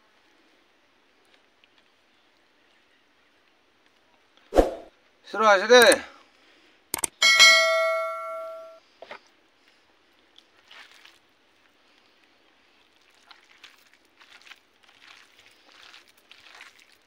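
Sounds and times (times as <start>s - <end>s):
bright ding chime: 7.2s - 8.8s
rice mixed by hand: 10.4s - 17.0s.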